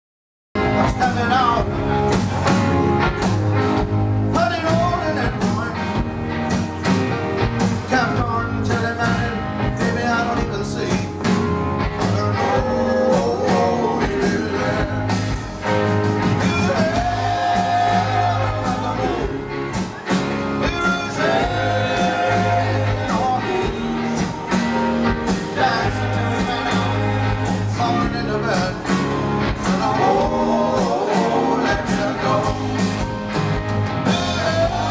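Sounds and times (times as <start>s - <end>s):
electric guitars: 0.6s - 34.9s
man singing: 0.8s - 1.8s, 4.3s - 5.9s, 7.8s - 11.2s, 12.0s - 15.4s, 16.3s - 19.6s, 20.6s - 24.4s, 25.4s - 32.9s, 34.0s - 34.9s.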